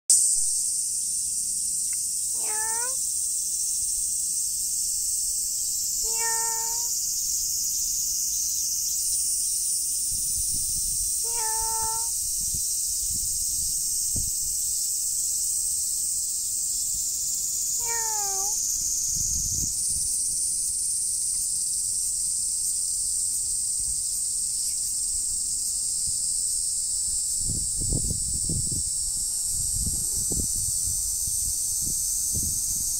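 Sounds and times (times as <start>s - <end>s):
high insect chorus: 0.1s - 32.9s
cat meowing: 2.4s - 3.0s, 6.0s - 6.9s, 11.3s - 12.2s, 17.8s - 18.6s.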